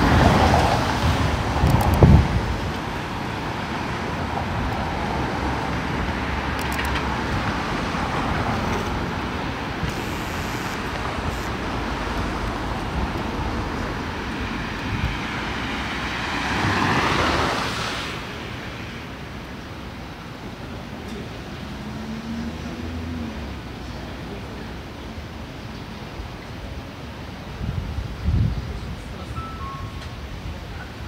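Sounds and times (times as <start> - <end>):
cars driving past: 0.0 - 24.7.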